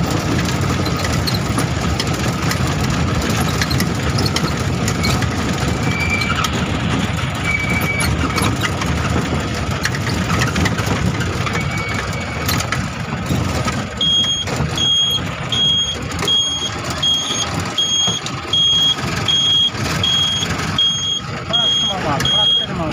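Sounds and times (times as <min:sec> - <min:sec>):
vehicle engine and road rumble: 0:00.0 - 0:22.9
reversing beeper: 0:07.4 - 0:08.5, 0:11.6 - 0:12.5, 0:14.0 - 0:22.9.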